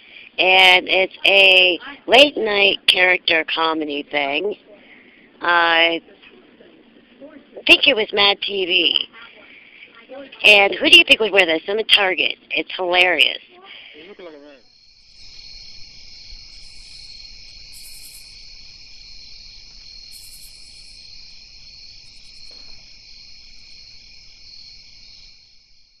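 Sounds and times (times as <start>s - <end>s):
high insect trills: 0.0s - 26.0s
insect chorus chirring: 7.6s - 26.0s.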